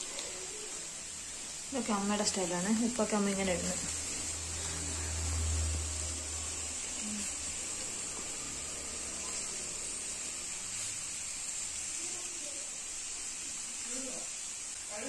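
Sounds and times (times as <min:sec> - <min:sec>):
faint cooking hiss in pan: 0:00.0 - 0:15.0
low hum: 0:02.4 - 0:10.6.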